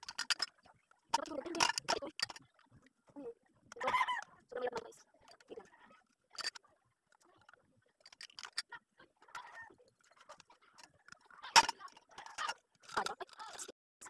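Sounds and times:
plastic connectors clicking: 7.2 - 13.7.

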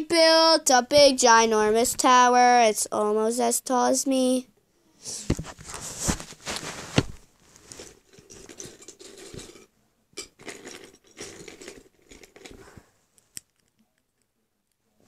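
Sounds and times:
phone handling rustling and scraping: 5.3 - 9.6.

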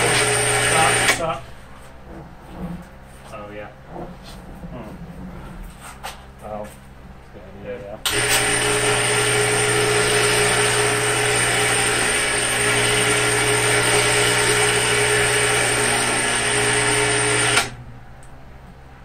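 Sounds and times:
electric chain hoist motor humming: 0.0 - 1.4, 8.1 - 17.9.

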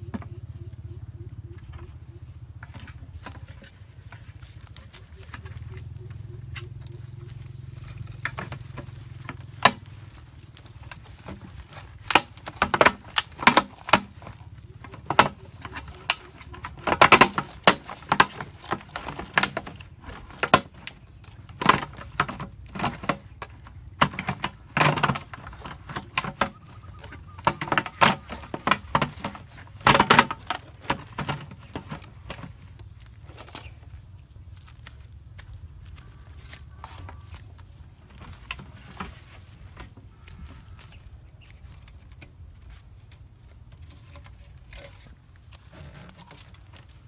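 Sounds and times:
plastic knocks and rattles: 7.8 - 33.9, 36.0 - 47.0.

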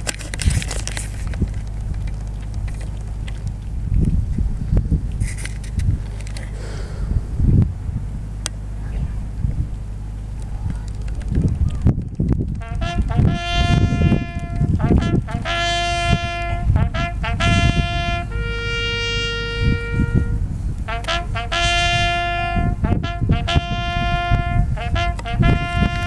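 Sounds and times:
wind rumbling on microphone: 0.0 - 26.0
bugle call on brass horn: 12.5 - 26.0.

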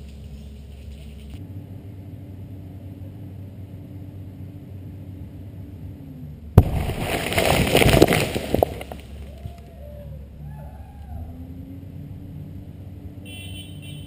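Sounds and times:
low steady hum: 0.0 - 14.0
explosive charge booming: 6.6 - 8.9
soil and rocks clattering down: 6.6 - 9.6.

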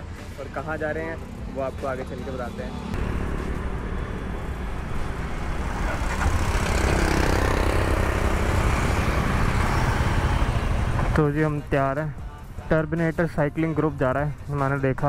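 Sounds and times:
motorcycle engine rumble: 2.9 - 11.4.

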